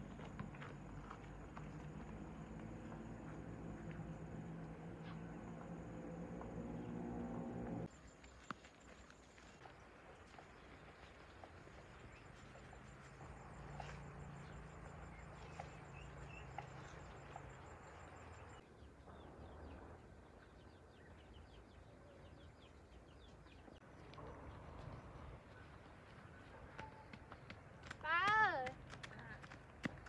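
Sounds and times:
insects chirping: 0.0s - 9.5s, 12.2s - 18.6s
footsteps on dirt path: 0.0s - 18.5s.

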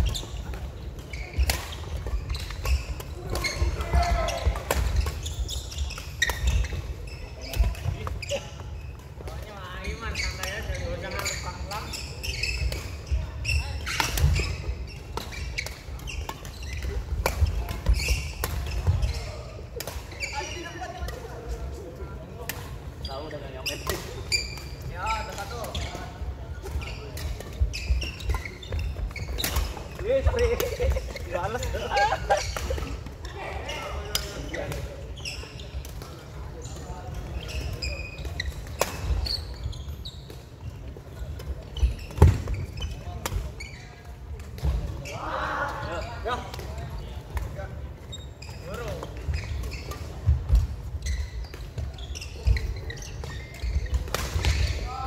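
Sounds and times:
shoes squeaking on wooden floor: 0.0s - 20.9s, 23.0s - 45.2s, 48.0s - 55.0s.

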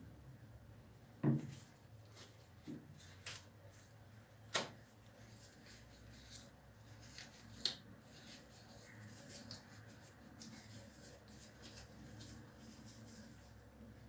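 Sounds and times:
tissue paper rustling and crinkling: 5.0s - 13.9s.

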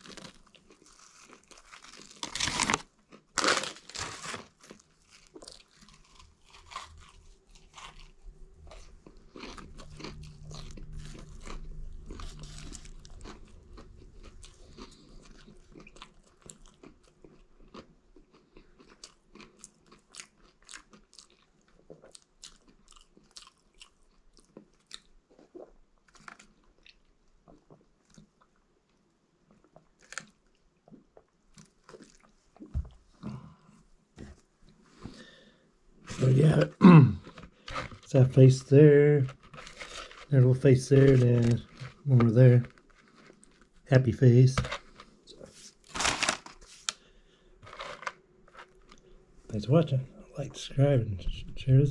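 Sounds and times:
person chewing and crunching food: 0.0s - 49.4s.

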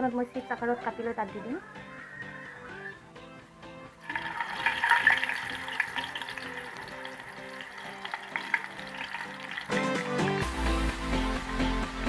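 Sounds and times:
background music: 0.0s - 12.0s
banana slices sizzling in oil: 4.0s - 10.5s.

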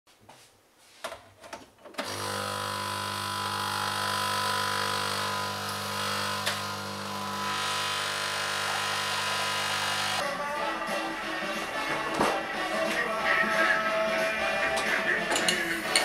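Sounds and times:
coffee machine pump humming: 2.0s - 10.2s.

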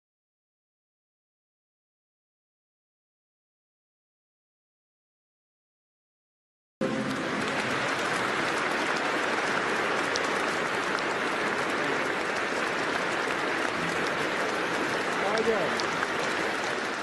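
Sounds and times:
audience applause: 6.8s - 17.0s.

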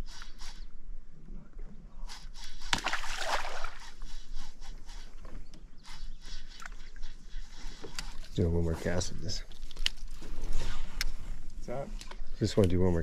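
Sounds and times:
water splashing around boat: 2.7s - 4.1s.

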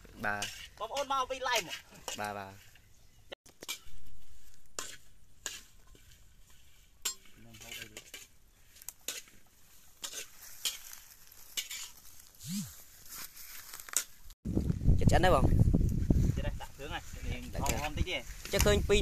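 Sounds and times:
metal spatula scraping wok: 0.0s - 12.4s
frying sizzle: 3.6s - 12.2s.

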